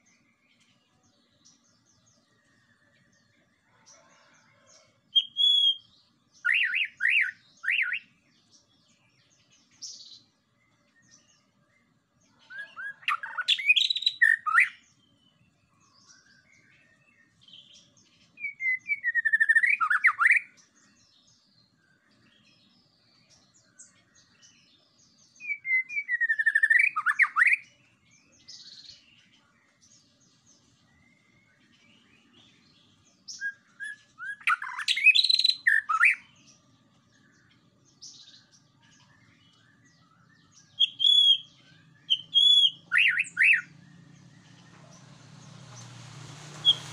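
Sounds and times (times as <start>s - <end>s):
songbird singing sliding notes: 12.4s - 21.5s, 22.1s - 46.9s.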